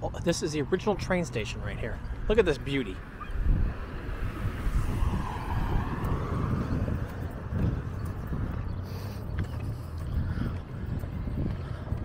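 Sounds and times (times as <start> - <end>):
low rumble of traffic: 0.0 - 12.0
car passing: 0.6 - 12.0.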